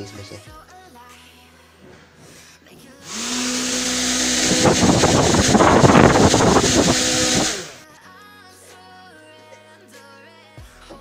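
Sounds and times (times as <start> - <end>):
electric motor whine: 3.0 - 7.8
fan propeller rushing air: 3.1 - 7.8.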